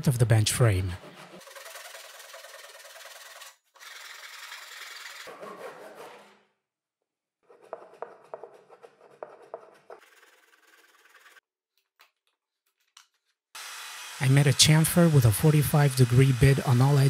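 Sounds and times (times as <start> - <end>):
hand saw sawing plywood: 0.8 - 6.5, 7.4 - 11.4, 13.6 - 17.0.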